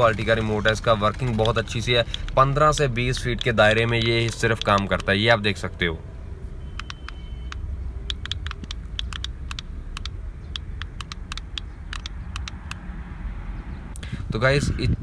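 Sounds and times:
remote control buttons clicking: 0:03.3 - 0:05.1, 0:06.7 - 0:12.8.

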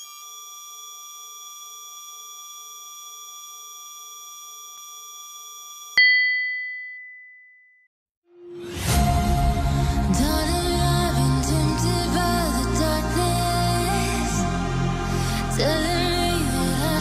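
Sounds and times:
bright ding: 0:06.0 - 0:07.9.

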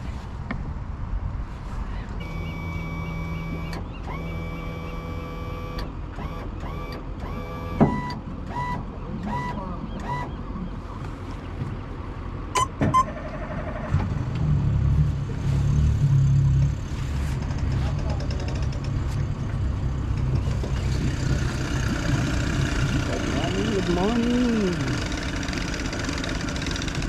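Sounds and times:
low engine rumble: 0:00.0 - 0:27.0
electronic console beeps: 0:12.6 - 0:13.1.

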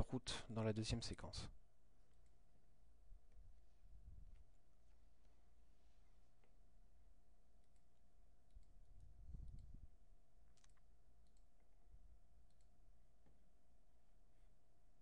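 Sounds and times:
faint steady hum: 0:00.0 - 0:15.0
computer mouse clicks: 0:07.6 - 0:09.8, 0:10.4 - 0:11.8, 0:12.4 - 0:13.4.

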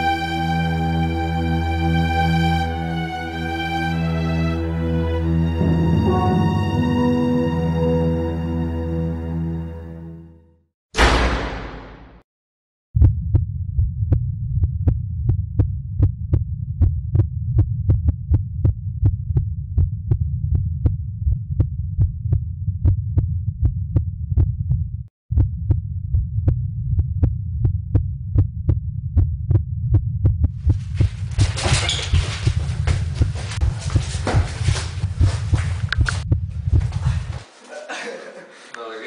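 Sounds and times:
low throbbing pulsing hum: 0:05.6 - 0:07.9, 0:13.0 - 0:31.4, 0:34.9 - 0:37.4.

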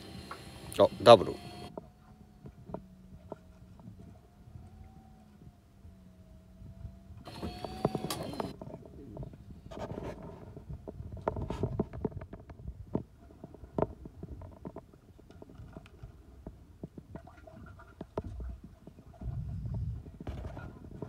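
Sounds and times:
wind rumbling on microphone: 0:01.6 - 0:21.0
microphone handling noise: 0:07.2 - 0:21.0
sharp clicks and knocks: 0:07.3 - 0:08.8.

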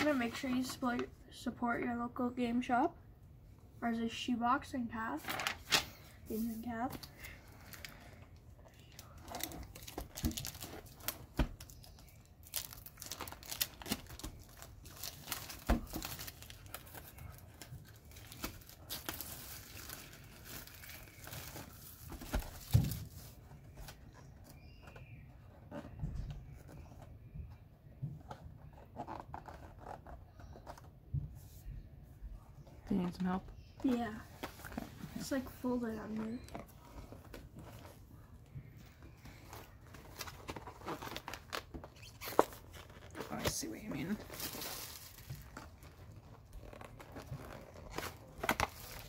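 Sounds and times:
plastic shrink-wrap tearing and crinkling: 0:08.9 - 0:23.0, 0:39.5 - 0:49.0.

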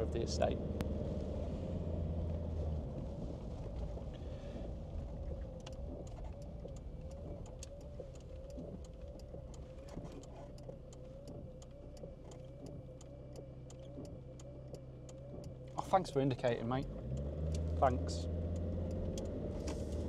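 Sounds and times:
diesel engine running: 0:00.0 - 0:20.0
light regular ticking: 0:00.4 - 0:20.0.

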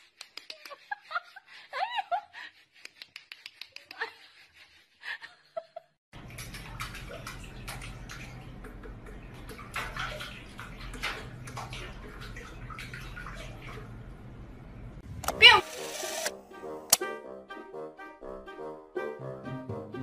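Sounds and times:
water splashing in steel sink: 0:06.2 - 0:14.0.

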